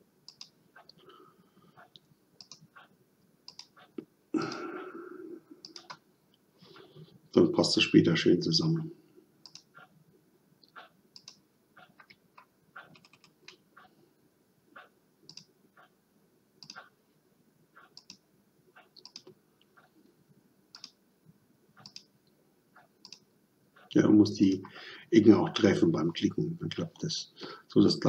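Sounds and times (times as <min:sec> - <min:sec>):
faint computer mouse clicks: 0:00.3 - 0:00.5, 0:01.9 - 0:02.7, 0:03.5 - 0:03.8, 0:05.6 - 0:06.0, 0:09.4 - 0:09.8, 0:10.6 - 0:11.4, 0:15.3 - 0:15.5, 0:16.6 - 0:16.9, 0:17.8 - 0:18.2, 0:18.9 - 0:19.4, 0:20.7 - 0:21.0, 0:21.8 - 0:22.1, 0:23.0 - 0:23.2.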